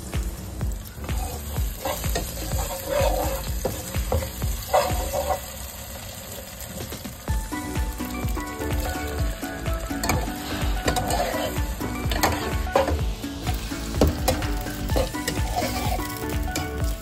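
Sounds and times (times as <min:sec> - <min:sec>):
vegetables sizzling in hot oil: 0:00.0 - 0:17.0
spatula scraping and tapping pan: 0:01.1 - 0:05.4, 0:10.0 - 0:13.0, 0:13.6 - 0:16.8.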